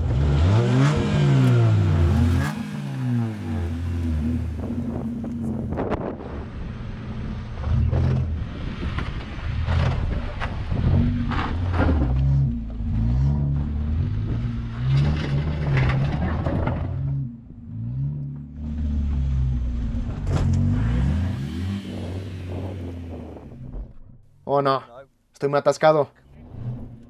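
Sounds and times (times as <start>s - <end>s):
car engines revving: 0.0s - 24.4s
tyres churning dirt: 7.1s - 24.0s.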